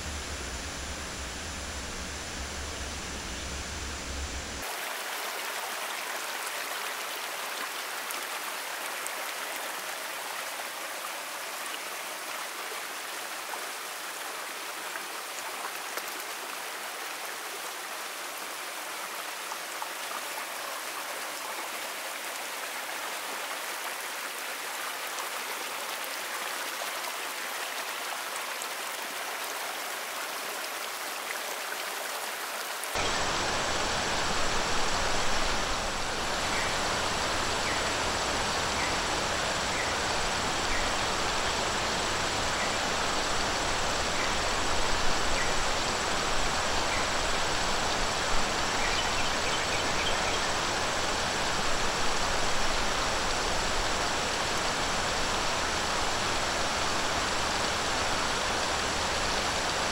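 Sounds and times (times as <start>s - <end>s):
stream rushing over rocks: 4.6s - 59.9s.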